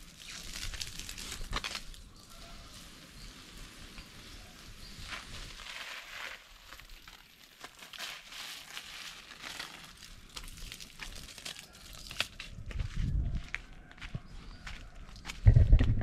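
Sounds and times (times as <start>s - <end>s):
footsteps on dry leaves: 0.2s - 15.3s
low rumble: 15.4s - 16.0s.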